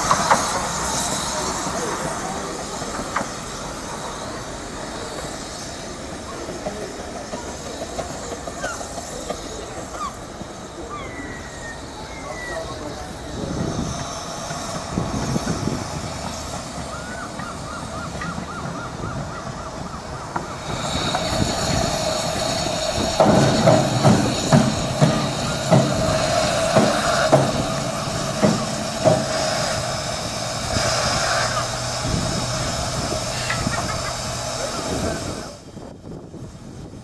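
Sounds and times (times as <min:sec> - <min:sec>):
steam hissing: 0:00.0 - 0:37.0
steam locomotive running on rails: 0:00.0 - 0:37.0
sharp metallic clanks: 0:20.8 - 0:32.0.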